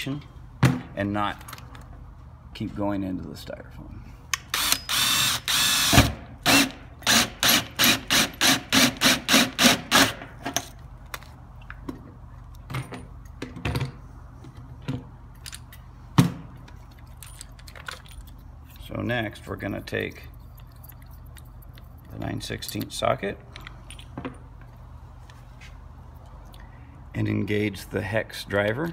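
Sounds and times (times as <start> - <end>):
power drill cutting metal: 4.6 - 10.2.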